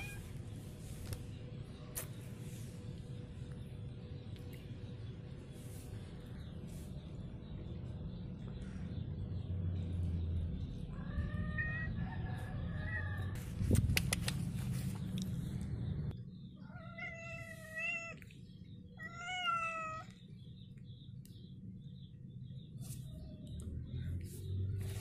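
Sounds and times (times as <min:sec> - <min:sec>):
cat meowing: 0:00.0 - 0:00.2, 0:16.6 - 0:18.2, 0:19.0 - 0:20.1
sharp clicks: 0:13.8 - 0:14.5.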